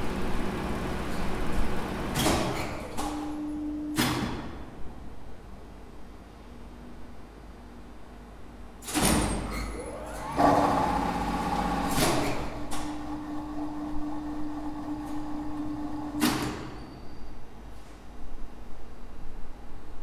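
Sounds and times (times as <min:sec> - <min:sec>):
lift motor humming: 0:09.7 - 0:16.2.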